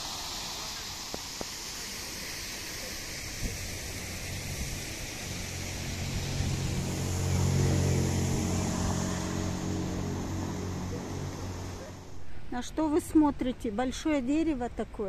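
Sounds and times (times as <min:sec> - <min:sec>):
background hiss: 0:00.0 - 0:15.0
vehicle engine hum passing: 0:03.6 - 0:12.5.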